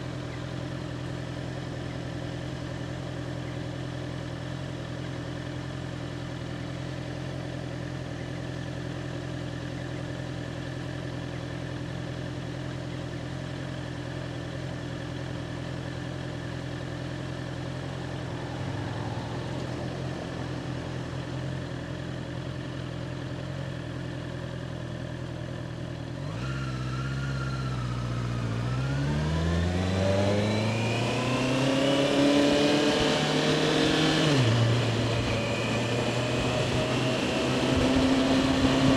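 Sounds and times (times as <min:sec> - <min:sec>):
motorcycle engine idling: 0:00.0 - 0:29.1
motorcycle accelerating: 0:00.0 - 0:38.9.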